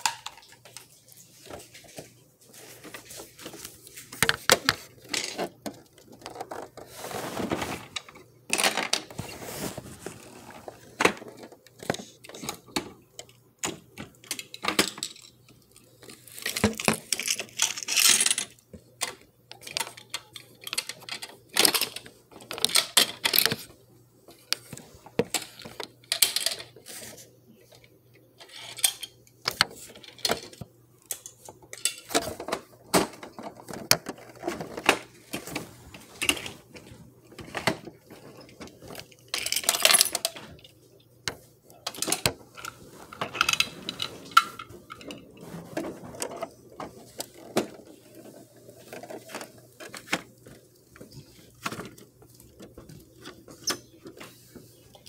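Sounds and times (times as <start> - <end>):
plastic toys clicking and rattling: 0.0 - 2.0, 2.7 - 6.9, 7.8 - 9.2, 10.1 - 55.0
plastic toy scraping: 6.1 - 8.0, 42.1 - 50.4.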